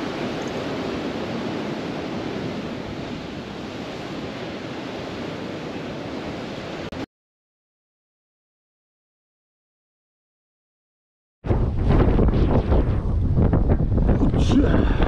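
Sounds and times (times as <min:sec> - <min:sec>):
surf washing against rocks: 0:00.0 - 0:07.0
wind buffeting microphone: 0:11.5 - 0:15.0.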